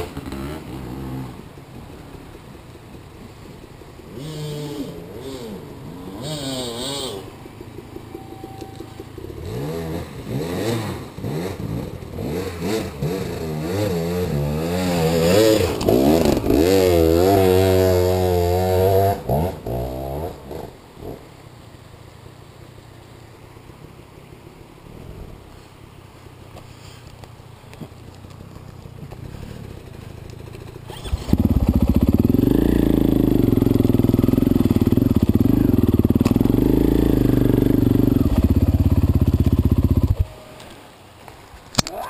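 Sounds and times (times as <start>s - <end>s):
dirt bike engine revving: 4.1s - 21.3s, 30.5s - 40.2s.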